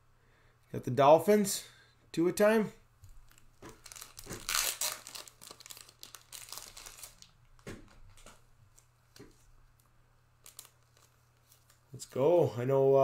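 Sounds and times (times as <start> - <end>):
plastic wrapping crinkling: 3.2 - 12.2.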